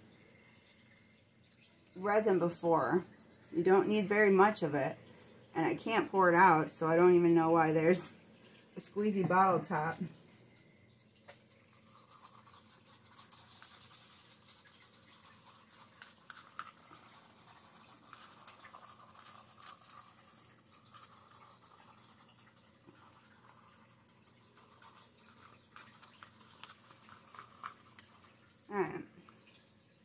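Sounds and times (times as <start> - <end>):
stick scraping paper cup: 11.8 - 28.4.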